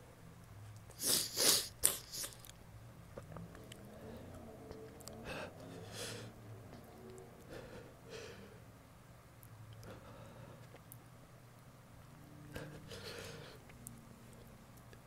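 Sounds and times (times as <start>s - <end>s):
sniffs and breaths: 0.9s - 2.4s, 12.5s - 13.8s
person sneezing: 1.0s - 2.3s.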